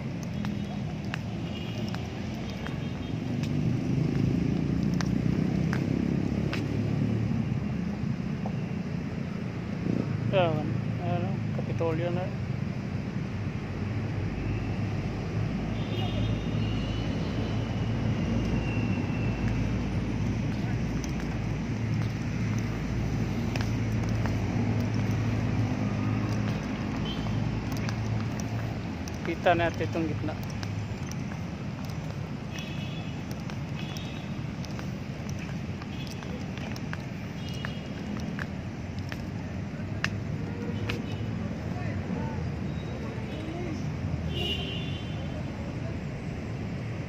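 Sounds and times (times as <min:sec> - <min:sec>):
low rumble of city traffic: 0:00.0 - 0:47.0
faint ticks: 0:04.2 - 0:05.8, 0:20.2 - 0:39.4
faint clicks: 0:20.2 - 0:39.3.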